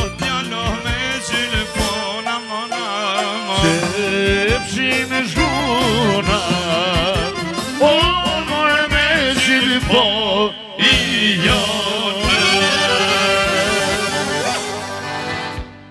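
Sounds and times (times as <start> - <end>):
ornamented instrumental melody: 0.9 - 9.1, 12.3 - 15.9
drum beat: 3.6 - 4.7, 5.8 - 7.4.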